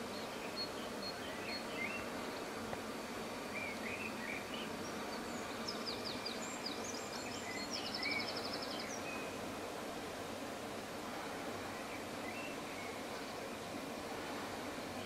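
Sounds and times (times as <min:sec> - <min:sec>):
songbirds chirping: 0:00.0 - 0:15.0
steady outdoor hiss: 0:00.0 - 0:15.0.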